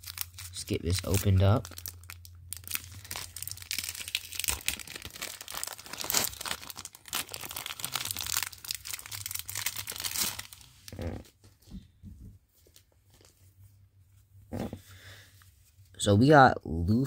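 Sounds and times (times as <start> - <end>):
plastic wrapper crinkling: 0.0 - 11.3.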